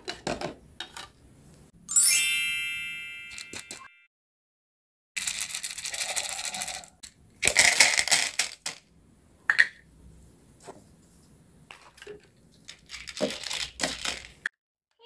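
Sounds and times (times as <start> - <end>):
corn kernels rattling into plastic pan: 5.2 - 8.8, 12.7 - 14.4.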